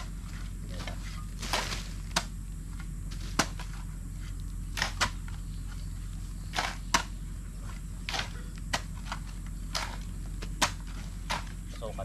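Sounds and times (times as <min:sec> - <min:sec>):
blades chopping into soil: 0:00.0 - 0:02.4, 0:03.1 - 0:03.9, 0:04.7 - 0:05.4, 0:06.5 - 0:07.2, 0:08.0 - 0:11.6.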